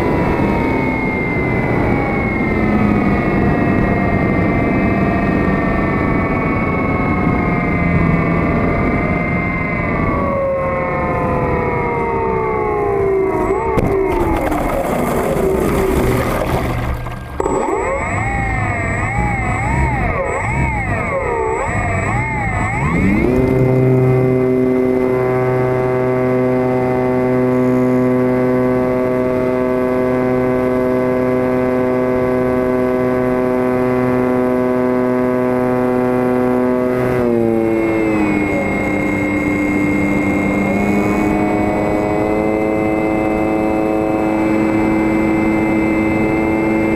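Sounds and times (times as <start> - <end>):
model plane electric motor whining: 0.0 - 46.9
rc plane motor whining: 17.0 - 28.3.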